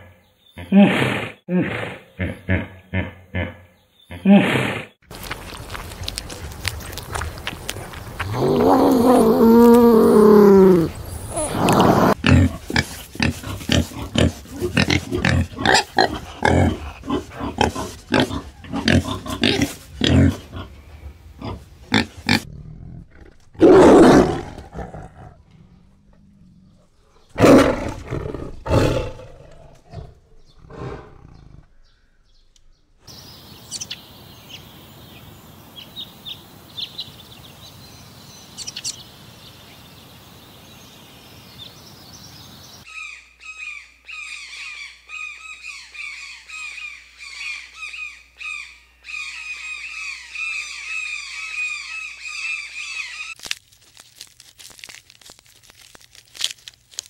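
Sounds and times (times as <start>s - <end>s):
peccary growls: 7.8s - 20.8s, 21.4s - 31.8s
peccary grunting: 8.2s - 20.8s, 21.4s - 31.7s.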